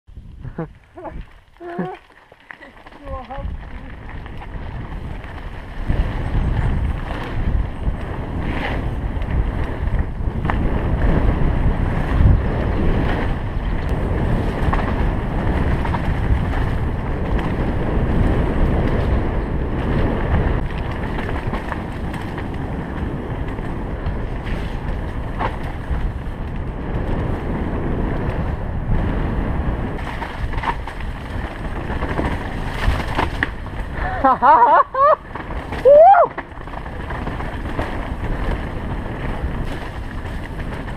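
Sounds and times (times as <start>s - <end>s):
bike tyres rolling on dirt trail: 0.1s - 40.9s
wind on camera microphone: 0.1s - 40.9s
bike knocking over bumps: 29.8s - 40.9s.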